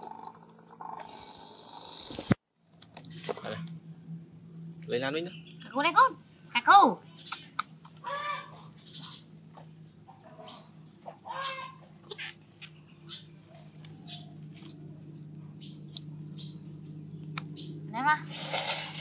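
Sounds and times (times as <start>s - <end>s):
animal calls and high chirps: 5.2s - 18.7s.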